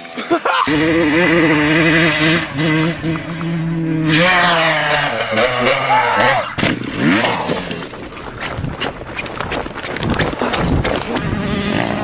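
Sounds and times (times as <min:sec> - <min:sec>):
bike knocks and rattles: 0:04.2 - 0:11.2
wind rushing over microphone: 0:06.6 - 0:12.0.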